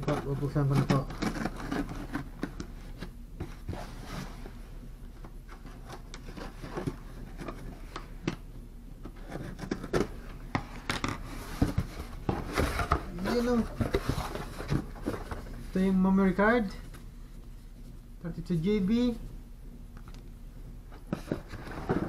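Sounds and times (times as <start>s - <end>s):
packaging rustling and scraping: 0.0s - 4.6s, 5.4s - 8.3s, 9.0s - 15.8s, 20.9s - 22.0s.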